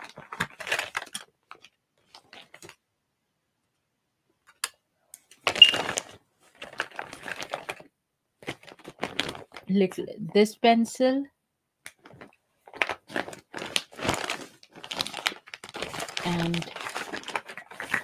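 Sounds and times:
makeup items clicking and rattling: 0:15.3 - 0:18.0.

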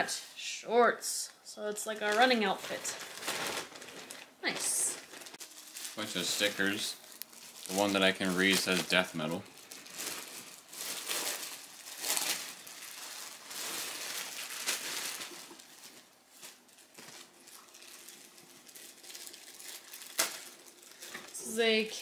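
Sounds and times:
plastic packaging crinkling: 0:01.9 - 0:21.6.

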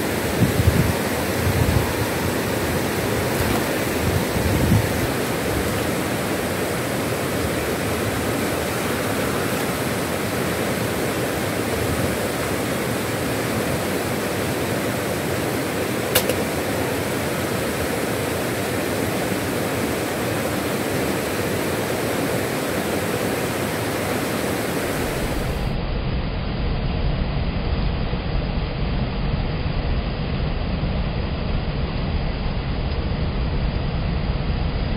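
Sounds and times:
water rushing over rocks: 0:00.0 - 0:25.8
sharp click: 0:16.1 - 0:16.5.

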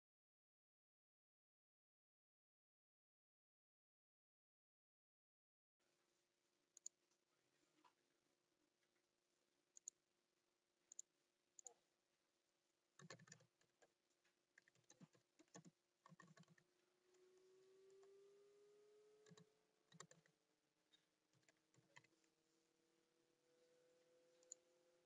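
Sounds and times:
mouse clicks: 0:09.8 - 0:10.0, 0:10.9 - 0:11.8, 0:19.2 - 0:22.3, 0:24.3 - 0:24.6
keyboard typing: 0:13.0 - 0:14.0, 0:14.6 - 0:16.7, 0:19.2 - 0:22.3.

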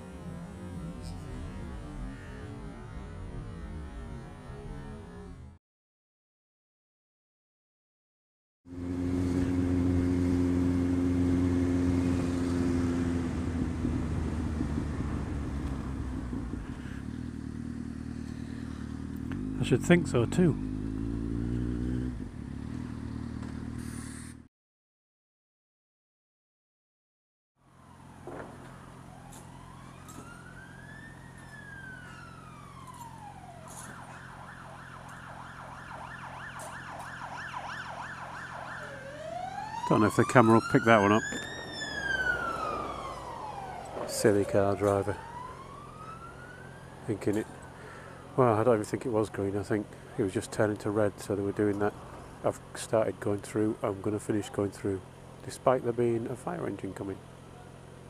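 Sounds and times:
road noise: 0:00.0 - 0:05.6, 0:08.7 - 0:24.5, 0:27.6 - 0:58.0
motorcycle engine: 0:08.7 - 0:24.5, 0:27.8 - 0:52.9
motorcycle engine idling: 0:13.3 - 0:24.1.

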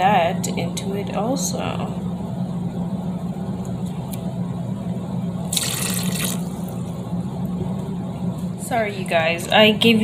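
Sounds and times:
steady low hum: 0:00.0 - 0:10.0
liquid pouring into bowl: 0:05.5 - 0:06.8.

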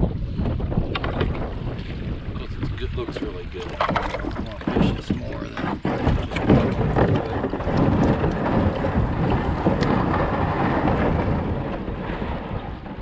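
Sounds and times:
microphone noise: 0:00.0 - 0:13.0.

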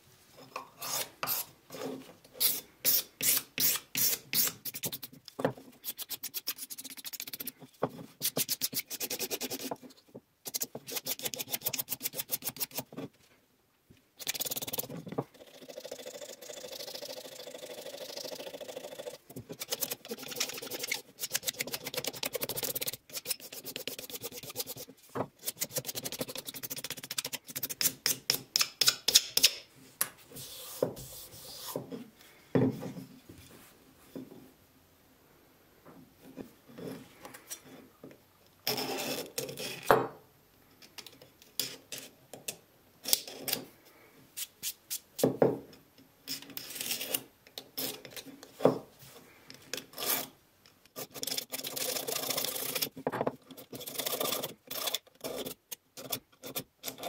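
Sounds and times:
steel scraper scraping wood: 0:00.8 - 0:05.0, 0:19.5 - 0:28.3.

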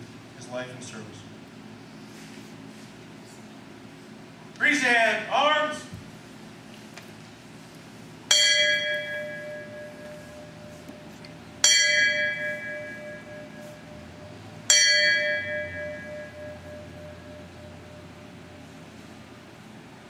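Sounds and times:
bell ringing: 0:08.3 - 0:18.8.

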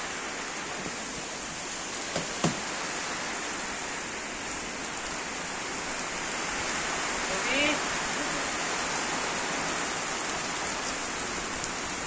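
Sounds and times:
heavy rain pouring: 0:00.0 - 0:12.0
sharp knocks: 0:02.1 - 0:02.6.

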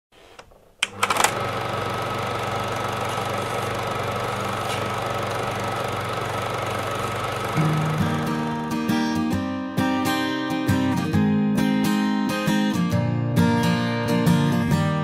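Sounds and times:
sharp clicks: 0:00.4 - 0:01.4
small motor humming with flutter: 0:00.4 - 0:08.8.

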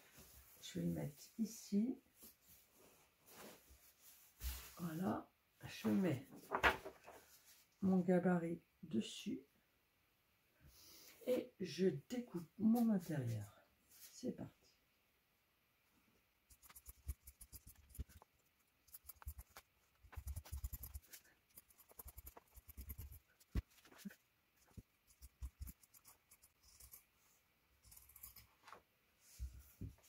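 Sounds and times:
scissors snipping fabric: 0:18.9 - 0:23.6, 0:25.1 - 0:27.1, 0:27.8 - 0:28.5.

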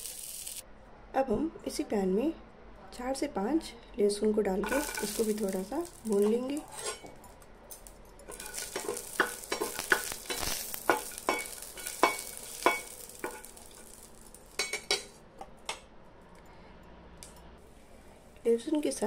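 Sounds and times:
garlic sizzling in oil: 0:00.0 - 0:00.6, 0:04.6 - 0:06.9, 0:08.3 - 0:15.2
metal spatula scraping pan: 0:04.6 - 0:07.2, 0:08.3 - 0:15.2.

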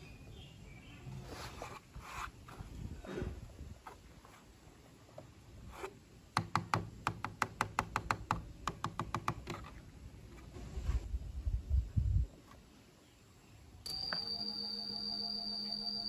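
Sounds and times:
fingers tapping on plastic: 0:06.4 - 0:09.6.

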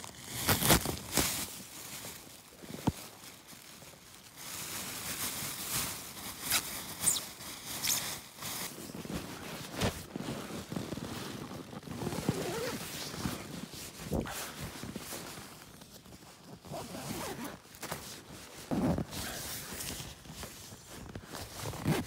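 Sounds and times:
plastic bag crinkling: 0:00.0 - 0:09.3.

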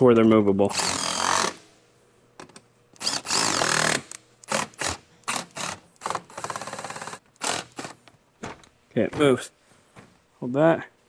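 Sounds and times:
cordless drill spinning bolts: 0:03.0 - 0:08.0.

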